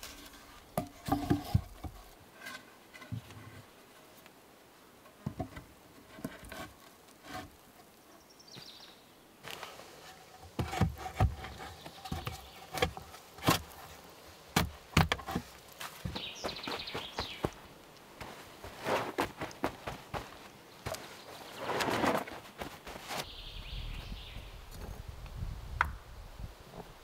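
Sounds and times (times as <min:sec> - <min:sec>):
logs knocking: 0:14.5 - 0:17.6.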